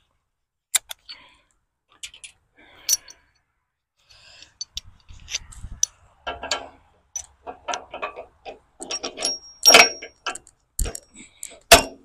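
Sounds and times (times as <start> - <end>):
metal top link clicking and knocking: 4.4 - 12.0.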